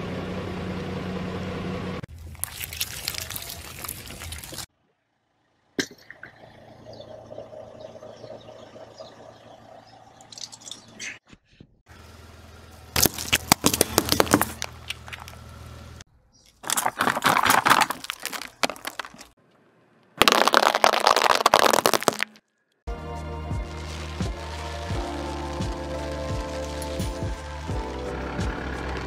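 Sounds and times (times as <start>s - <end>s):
tyre crushing plastic objects: 13.0s - 15.4s, 16.5s - 19.4s, 20.2s - 22.4s.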